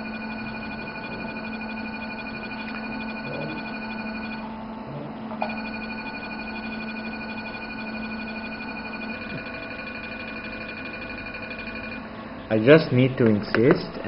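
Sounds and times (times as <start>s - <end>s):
laser emission beep: 0.0s - 4.4s, 5.4s - 12.1s
steady low hum: 0.0s - 14.0s.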